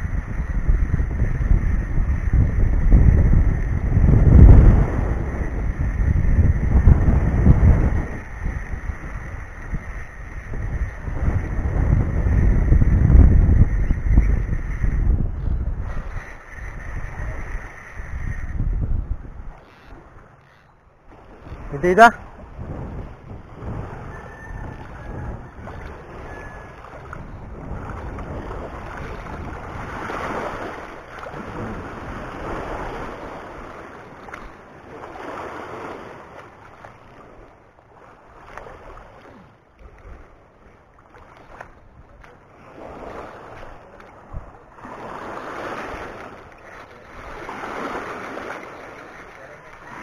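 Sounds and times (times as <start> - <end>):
wind rumbling on microphone: 0.0 - 50.0
waves washing over pebbly shore: 44.8 - 50.0.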